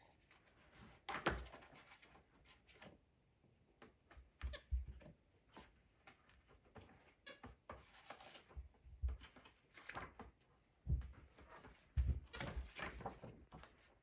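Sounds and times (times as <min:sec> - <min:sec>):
book pages rustling: 0:07.8 - 0:10.3, 0:11.0 - 0:14.0.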